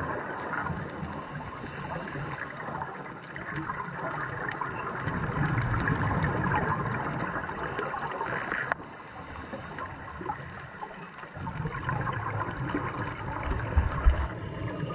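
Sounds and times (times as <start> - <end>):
underwater exhaled breath bubbling: 11.3 - 14.9.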